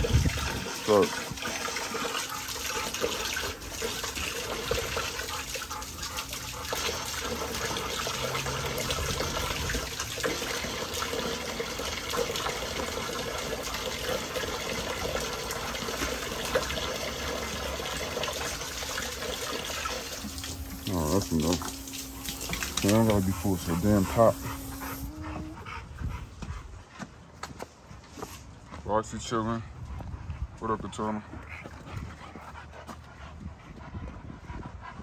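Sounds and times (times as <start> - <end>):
hose water running into bowl: 0.0 - 25.2.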